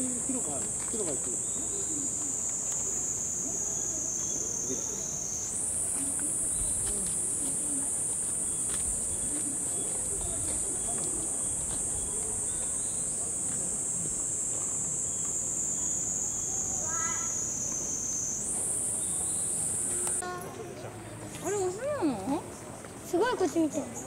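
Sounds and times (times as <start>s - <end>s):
cicadas buzzing: 0.0s - 20.3s.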